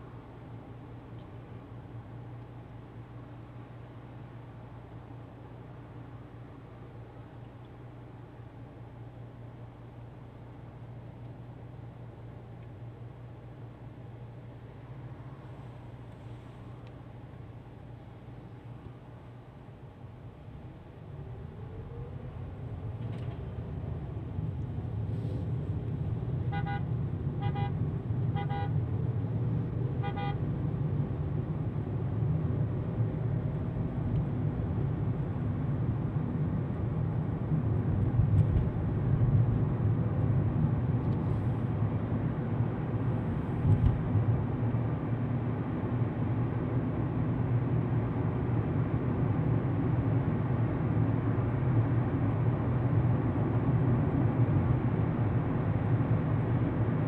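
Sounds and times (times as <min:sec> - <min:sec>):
car road and engine rumble: 0:00.0 - 0:57.0
car horn beeps: 0:26.5 - 0:28.8, 0:30.0 - 0:30.4.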